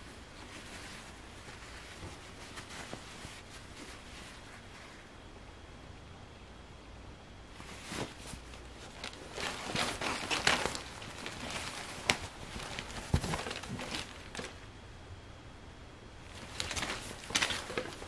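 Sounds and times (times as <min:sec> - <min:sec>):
denim fabric rustling: 0:00.0 - 0:05.1, 0:07.5 - 0:14.6, 0:16.3 - 0:18.0.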